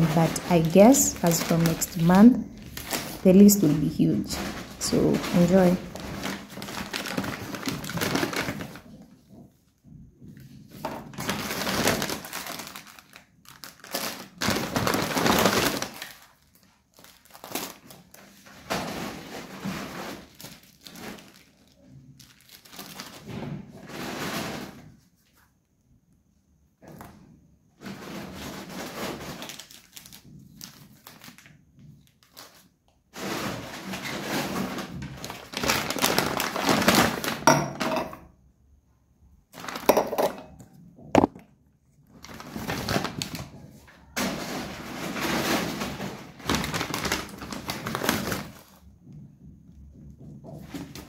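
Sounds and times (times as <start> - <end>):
plastic bag rustling: 0.0 - 25.4, 27.8 - 37.5, 39.5 - 40.6, 42.0 - 49.5
items knocking on stone countertop: 37.4 - 38.3, 39.9 - 40.5, 41.1 - 41.4.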